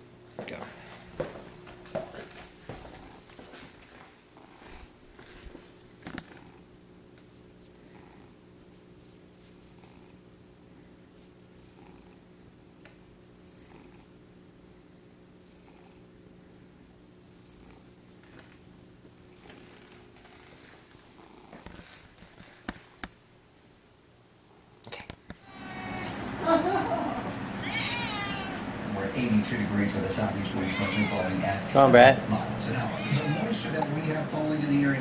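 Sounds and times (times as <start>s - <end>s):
cat purring: 2.9s - 3.4s, 4.2s - 5.4s, 6.0s - 6.7s, 7.6s - 10.3s, 11.5s - 12.3s, 13.4s - 14.2s, 15.4s - 16.1s, 17.2s - 18.1s, 19.2s - 22.1s, 24.2s - 25.0s, 25.8s - 34.9s
soft hissing breaths: 17.2s - 23.1s.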